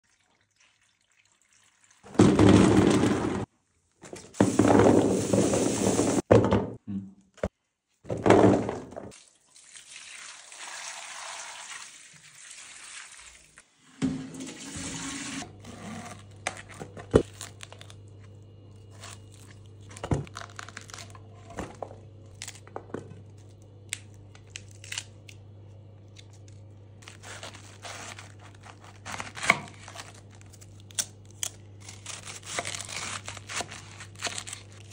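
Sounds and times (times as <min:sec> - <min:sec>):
knife cutting cabbage on board: 0:27.0 - 0:30.2, 0:31.8 - 0:34.7.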